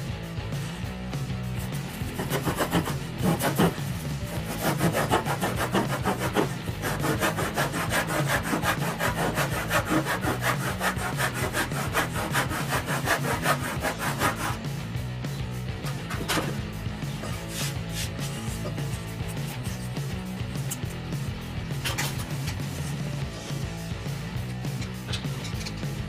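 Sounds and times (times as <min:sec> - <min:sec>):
hand saw cutting wood: 0:01.6 - 0:14.7, 0:15.9 - 0:20.0.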